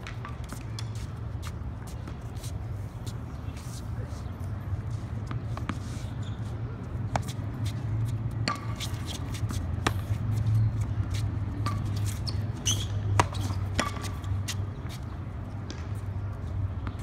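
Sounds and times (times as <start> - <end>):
ball bouncing on hard court: 7.1 - 10.2, 11.6 - 14.6, 15.6 - 16.0.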